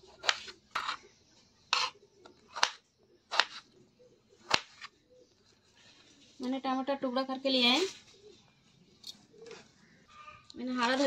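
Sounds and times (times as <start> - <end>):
knife slicing tomato: 0.1 - 1.0, 1.7 - 3.7.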